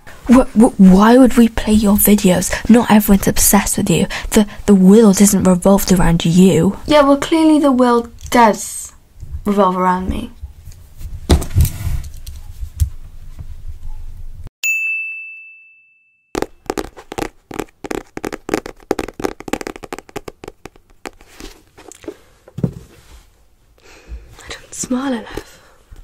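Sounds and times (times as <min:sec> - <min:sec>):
bright ding: 0:14.6 - 0:16.4
fingers tapping cardboard box: 0:16.4 - 0:21.6.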